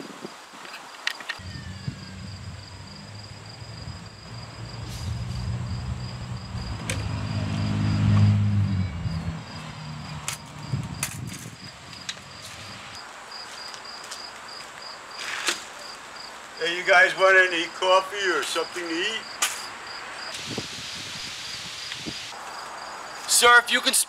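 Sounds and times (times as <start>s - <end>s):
pulsed insect chirping: 1.4s - 8.0s
low engine hum: 1.4s - 12.9s.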